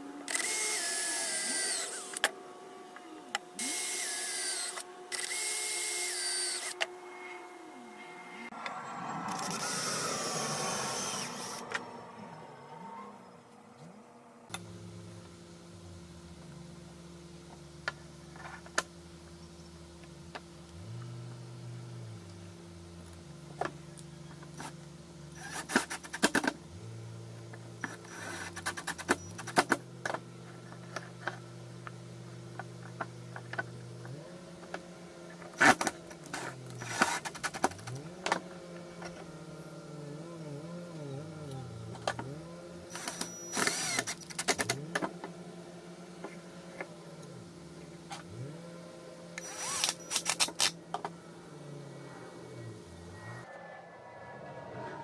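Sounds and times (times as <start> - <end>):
cordless drill driving screws: 0.3 - 2.3, 3.6 - 6.9, 10.9 - 11.7, 35.6 - 38.0, 42.9 - 44.8, 49.4 - 50.8.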